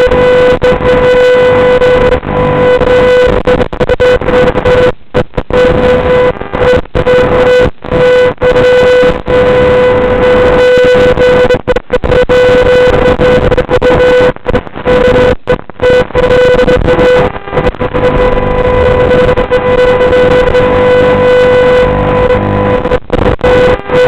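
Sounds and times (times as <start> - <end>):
loud electronic buzz: 0.0 - 24.0.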